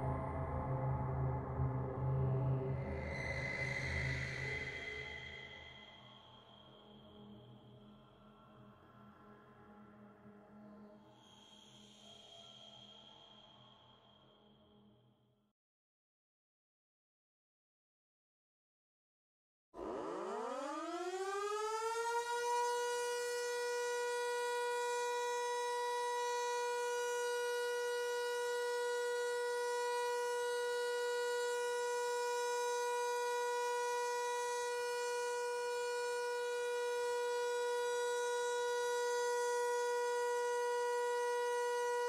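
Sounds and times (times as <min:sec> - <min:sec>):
siren steady tone: 0:02.4 - 0:06.1, 0:19.8 - 0:42.0.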